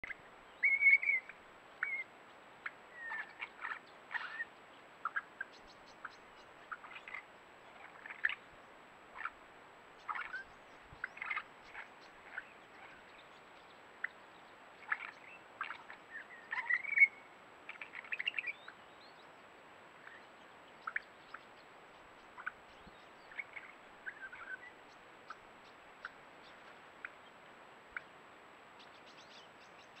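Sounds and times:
faint steady hiss: 0:00.0 - 0:30.0
birds chirping and whistling: 0:00.6 - 0:02.0, 0:14.9 - 0:17.2.

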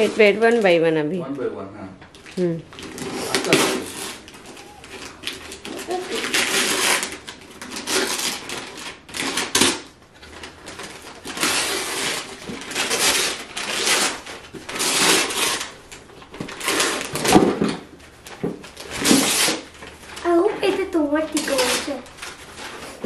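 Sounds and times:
wrapping paper tearing: 0:00.0 - 0:00.7, 0:02.1 - 0:23.0.

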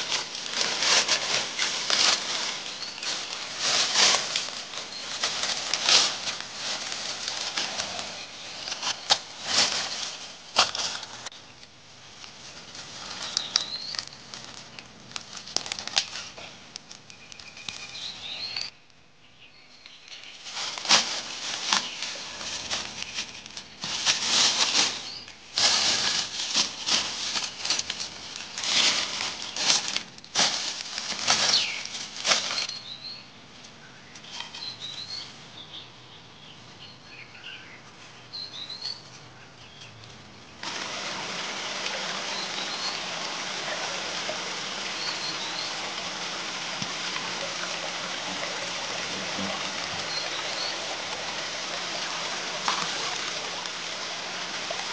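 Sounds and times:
dry leaves rustling and crackling: 0:00.0 - 0:11.4, 0:12.1 - 0:18.7, 0:20.1 - 0:33.2, 0:40.6 - 0:54.9
bird chirping: 0:13.3 - 0:14.3, 0:17.1 - 0:20.4, 0:32.6 - 0:40.0, 0:42.3 - 0:43.1, 0:44.9 - 0:45.9
water hissing: 0:40.6 - 0:54.9.

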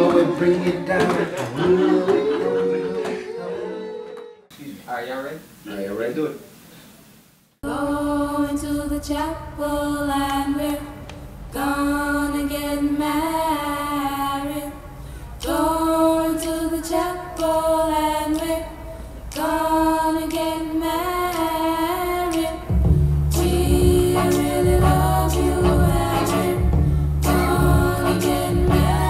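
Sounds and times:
person singing: 0:00.0 - 0:04.5, 0:23.4 - 0:29.0.

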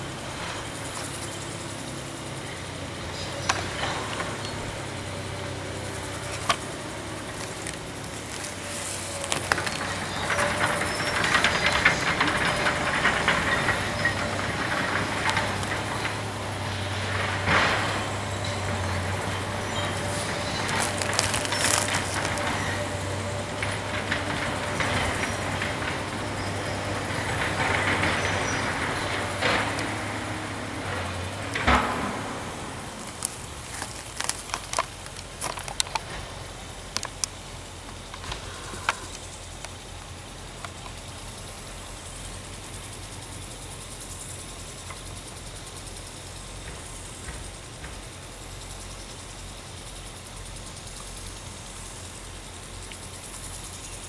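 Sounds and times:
distant excavator running: 0:00.0 - 0:54.0
wood cracking and splintering: 0:02.7 - 0:39.0.

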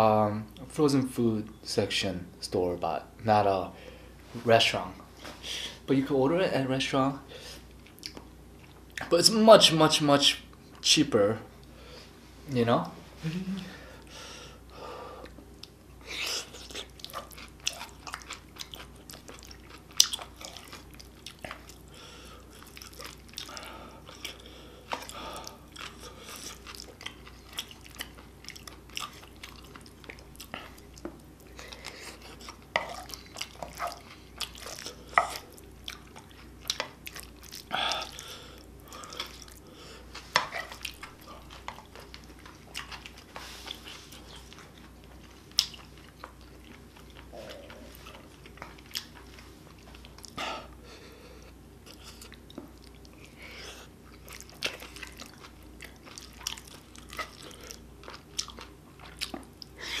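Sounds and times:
person chewing: 0:07.7 - 0:09.1, 0:15.2 - 1:00.0.

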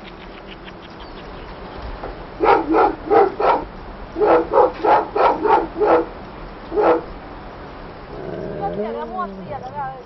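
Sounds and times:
dog barking: 0:02.4 - 0:06.1, 0:06.7 - 0:07.1.

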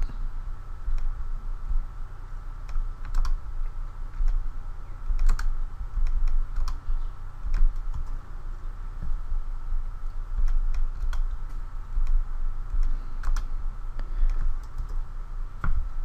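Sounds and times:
steady low hum: 0:00.0 - 0:16.0
mouse and keyboard clicks: 0:02.6 - 0:03.4, 0:05.1 - 0:06.8, 0:07.4 - 0:08.2, 0:10.0 - 0:15.0.

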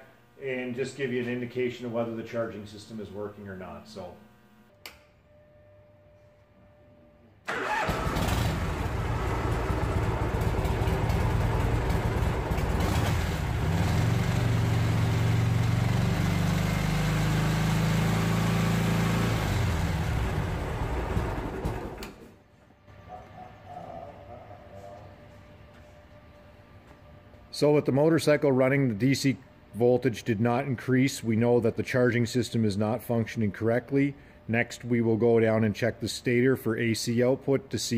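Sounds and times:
motorcycle engine revving: 0:07.5 - 0:22.0.

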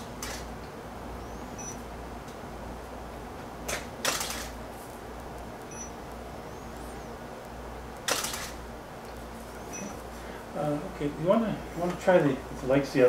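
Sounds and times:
low room hum: 0:00.0 - 0:13.0
camera shutter clicking: 0:03.7 - 0:04.6, 0:08.0 - 0:08.6.

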